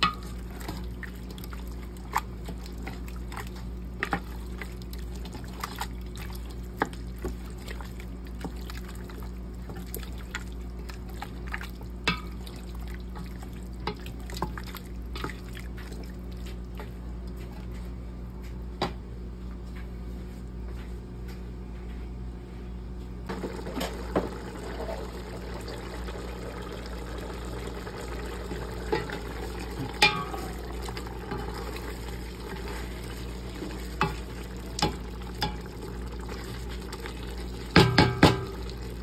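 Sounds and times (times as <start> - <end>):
meat simmering wetly: 0.0 - 18.0, 23.3 - 39.0
steady low hum: 0.0 - 39.0
spoon knocking against pot: 37.8 - 38.6.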